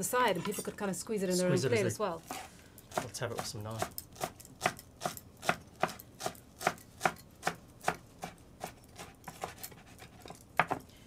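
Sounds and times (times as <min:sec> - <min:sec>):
knife chopping on wooden board: 0:02.9 - 0:10.8.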